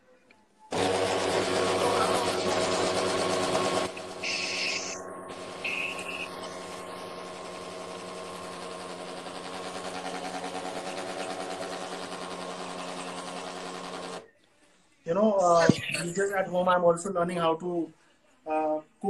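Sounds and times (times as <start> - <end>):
electric blender motor running: 0.7 - 14.2.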